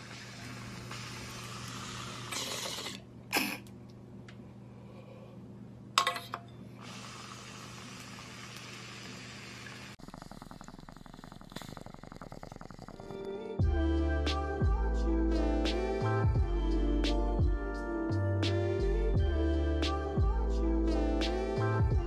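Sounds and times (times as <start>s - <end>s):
water bubbling in bong: 10.0s - 13.3s.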